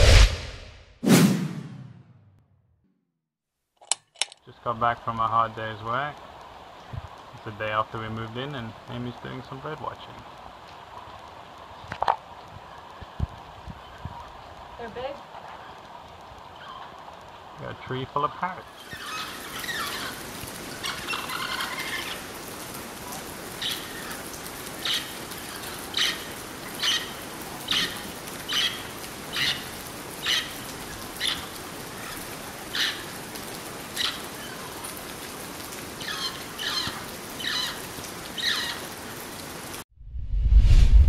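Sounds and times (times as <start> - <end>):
steady hiss: 4.5 - 31.0
parrots calling: 18.7 - 22.4, 23.6 - 33.2, 33.9 - 34.8, 36.0 - 38.9.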